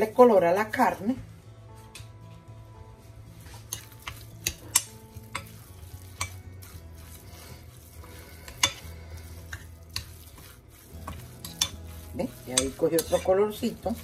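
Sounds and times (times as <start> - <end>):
spoon stirring food mixture: 3.3 - 14.0.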